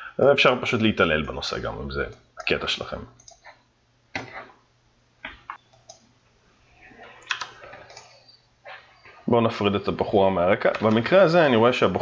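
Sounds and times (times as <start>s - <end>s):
mouse and keyboard clicks: 3.2s - 4.5s, 7.2s - 8.4s.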